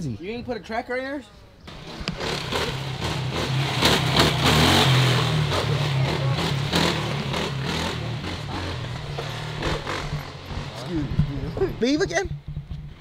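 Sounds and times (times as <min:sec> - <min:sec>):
vehicle engine revving: 0:01.7 - 0:13.0.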